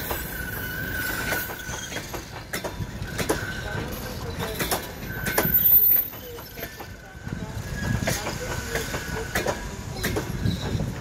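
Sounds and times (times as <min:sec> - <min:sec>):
train wheels clacking over rail joints: 0:00.0 - 0:11.0
thin wheel squeal: 0:00.2 - 0:02.1.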